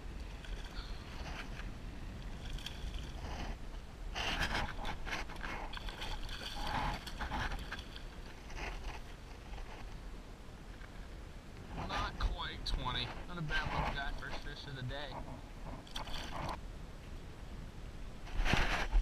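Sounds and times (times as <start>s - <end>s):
wind rumble on microphone: 0.0s - 19.0s
fish splashing water: 4.3s - 8.8s.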